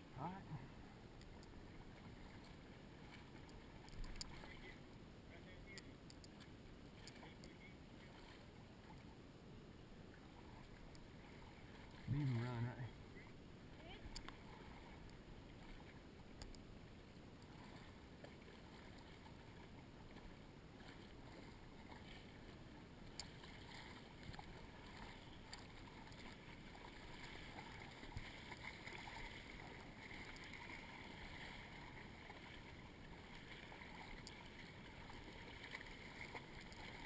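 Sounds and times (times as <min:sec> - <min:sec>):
water sloshing and lapping: 0:00.0 - 0:37.0
soft clicks: 0:05.7 - 0:07.6, 0:14.1 - 0:14.4, 0:16.4 - 0:16.6.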